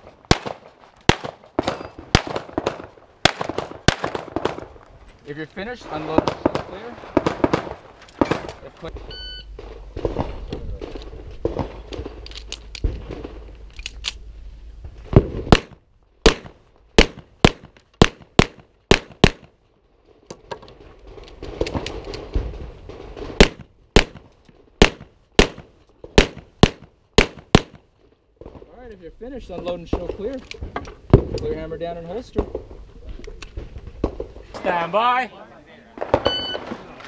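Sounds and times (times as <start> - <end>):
pistol shots: 0.0 - 4.7, 15.5 - 19.5, 23.4 - 27.8.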